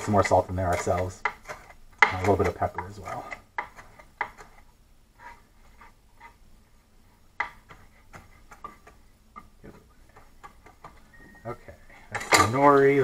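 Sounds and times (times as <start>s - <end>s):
knife chopping on cutting board: 7.4s - 9.0s.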